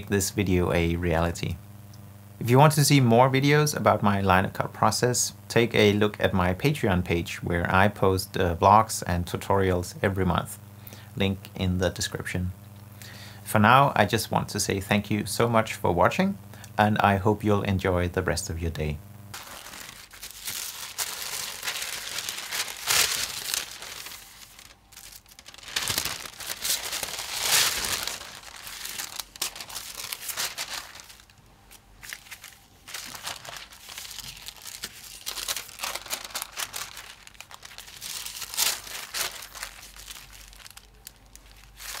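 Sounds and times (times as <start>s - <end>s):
paper crinkling and rustling: 19.3s - 42.0s.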